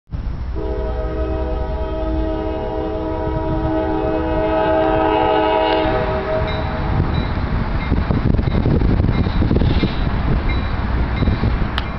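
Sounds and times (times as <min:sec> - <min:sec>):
steady low rumble: 0:00.1 - 0:11.9
train air horn blast: 0:00.5 - 0:06.8.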